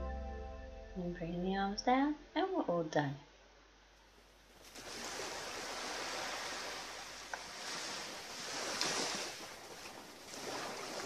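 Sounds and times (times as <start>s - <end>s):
small waves lapping on rocks: 4.6s - 11.0s.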